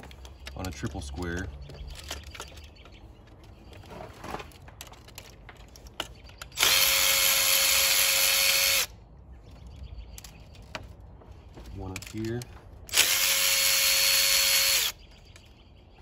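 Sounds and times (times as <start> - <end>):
electric ratchet spinning: 6.6 - 8.9, 12.9 - 15.0.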